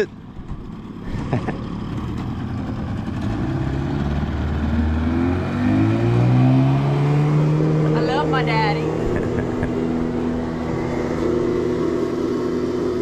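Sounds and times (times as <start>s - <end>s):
outboard motor speeding up: 0.0s - 13.0s.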